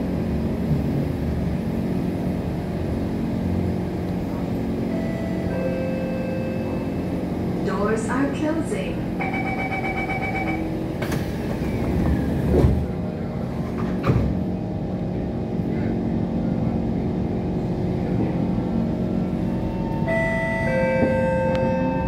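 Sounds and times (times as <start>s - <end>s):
train hum: 0.0s - 22.0s
train doors closing thuds: 10.1s - 14.6s, 20.0s - 22.0s
traction motors whining: 18.8s - 22.0s.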